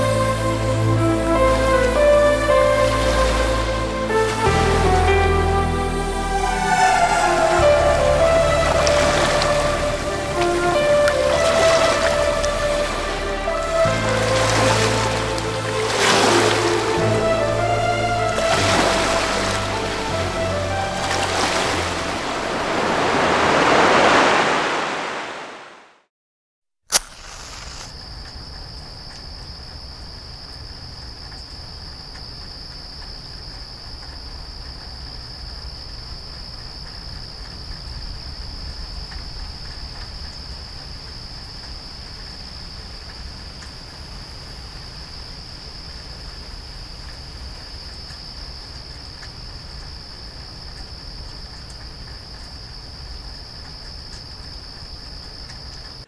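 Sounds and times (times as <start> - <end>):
insects droning: 0.0 - 25.7, 26.9 - 56.0
sharp click: 26.9 - 27.9.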